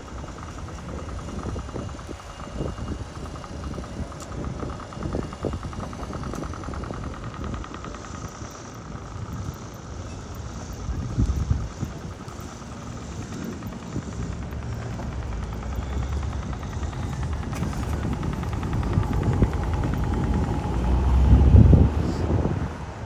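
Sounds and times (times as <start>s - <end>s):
fast even ticking: 0.0s - 23.0s
low rumble of traffic: 0.0s - 23.0s
loud vehicle passing: 17.2s - 23.0s.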